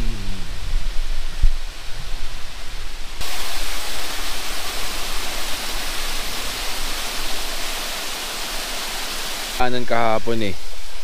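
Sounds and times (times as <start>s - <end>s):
waterfall rushing: 3.2s - 11.0s.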